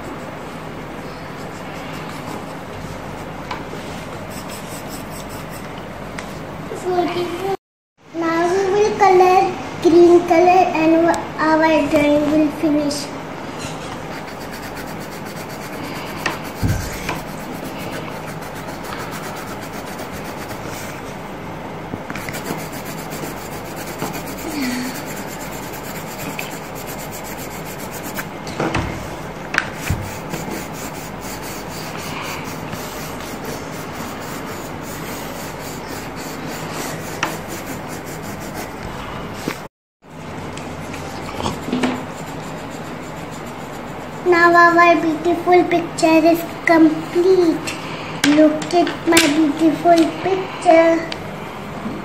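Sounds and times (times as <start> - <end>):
colored pencil scratching paper: 0.0 - 5.7, 14.0 - 21.0, 22.1 - 28.3, 29.7 - 39.6, 40.7 - 45.4.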